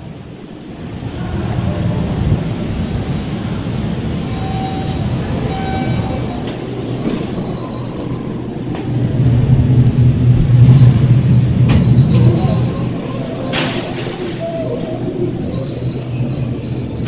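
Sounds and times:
elevator mechanical running noise: 1.9 - 17.0
elevator clicks: 4.9 - 17.0.

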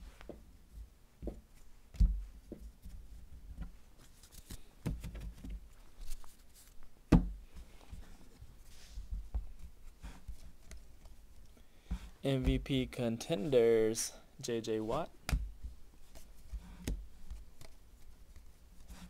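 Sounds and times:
papery rustling of cards: 3.9 - 6.8.

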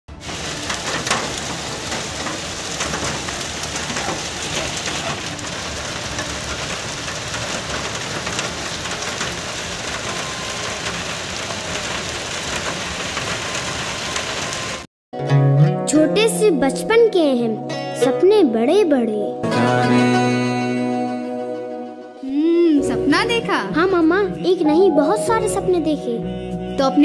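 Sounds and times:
heavy rain falling: 0.1 - 14.9
raindrops ticking on hard surfaces: 0.1 - 14.9.

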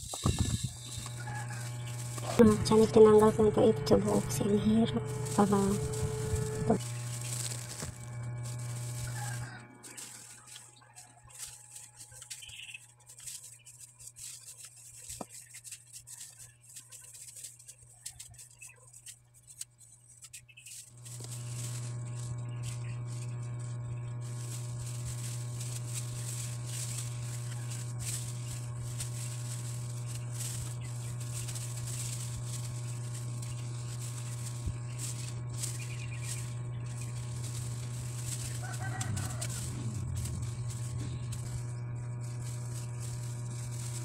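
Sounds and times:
low buzzy electrical hum: 0.0 - 44.0
chicken clucking: 38.4 - 40.0.

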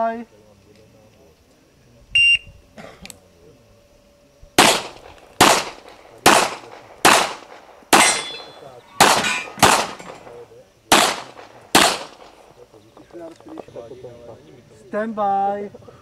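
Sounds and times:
shot timer beep: 2.2 - 2.5
handgun shots: 4.6 - 12.5
steel target ringing: 8.0 - 10.3.

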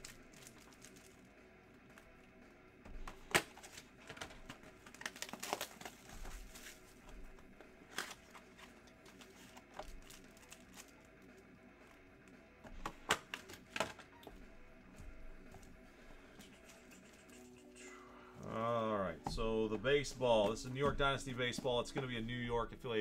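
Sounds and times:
wrapper crinkling and tearing: 0.0 - 1.3, 3.3 - 7.2, 7.8 - 11.4.

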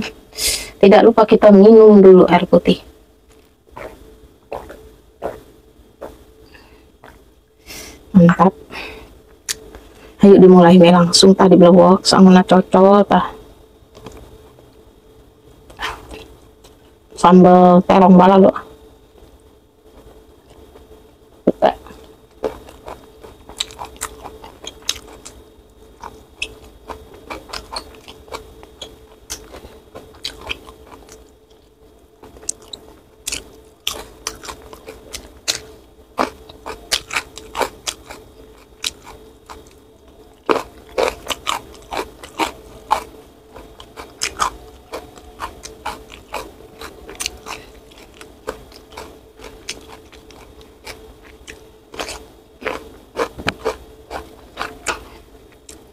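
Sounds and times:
crunchy bites and chewing: 3.2 - 7.3, 21.8 - 55.9.

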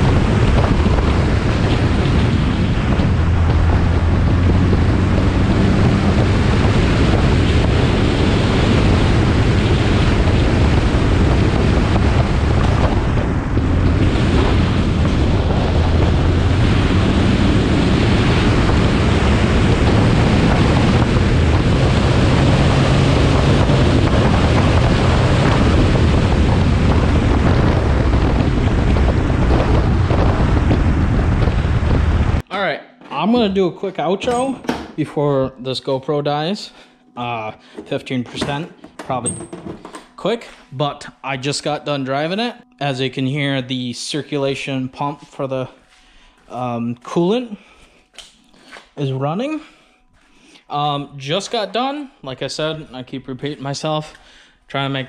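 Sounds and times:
rally car engine: 0.0 - 32.4
wind rushing on microphone: 0.0 - 32.4.

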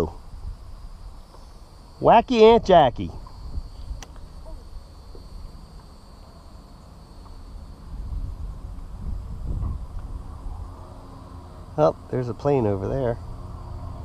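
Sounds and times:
wind rumbling on microphone: 0.0 - 1.3, 2.5 - 5.5, 7.4 - 14.0
high drone of insects: 0.0 - 14.0.

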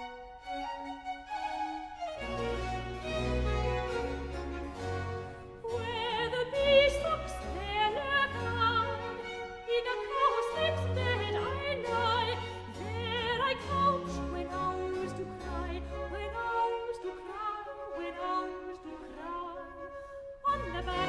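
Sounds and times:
baroque string orchestra: 0.0 - 21.0
soprano singing with vibrato: 5.6 - 21.0.

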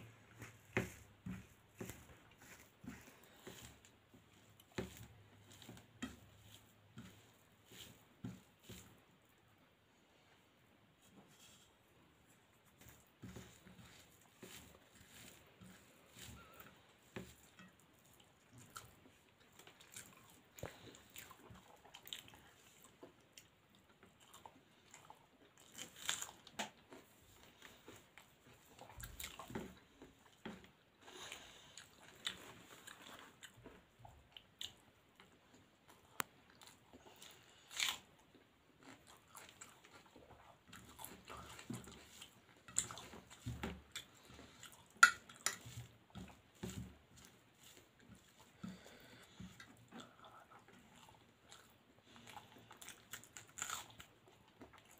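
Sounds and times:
fingers mixing food on steel plate: 0.0 - 9.1, 12.1 - 21.8, 38.8 - 51.4.

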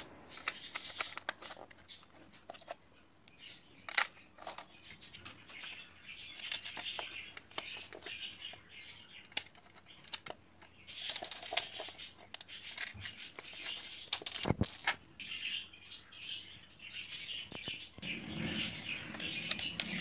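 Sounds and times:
plastic bricks clicking on wood: 0.0 - 1.8, 5.5 - 8.3.

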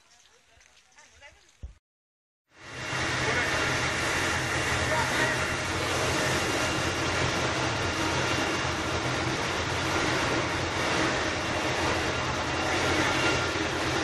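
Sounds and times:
boat engine droning: 2.5 - 14.0.

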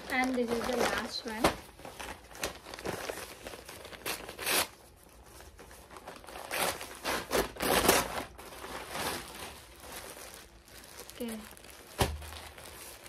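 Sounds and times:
paper mailer tearing and crinkling: 0.0 - 13.0.

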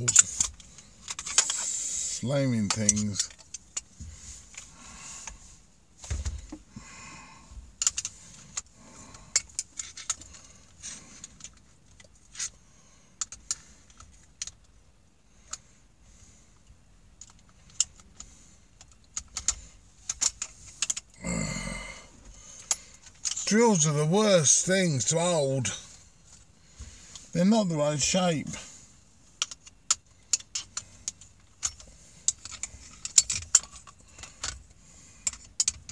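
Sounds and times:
small metallic clicks and rattling: 0.0 - 1.7, 2.5 - 3.9, 7.8 - 14.8, 16.6 - 21.2, 22.5 - 23.6, 29.2 - 35.9.

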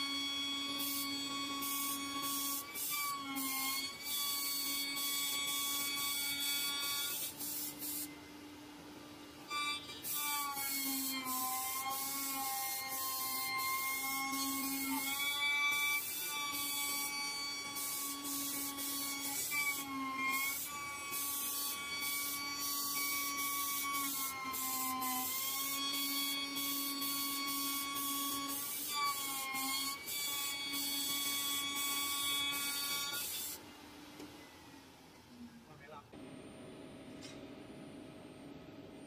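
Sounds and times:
router spindle high-pitched whine: 0.0 - 7.3
hiss of cutting foam: 0.0 - 8.1, 9.8 - 33.6.

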